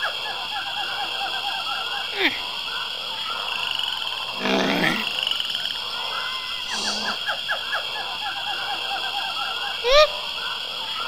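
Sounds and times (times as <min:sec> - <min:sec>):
insect drone: 0:00.0 - 0:11.0
croaking growling call: 0:04.3 - 0:05.4, 0:06.0 - 0:07.4.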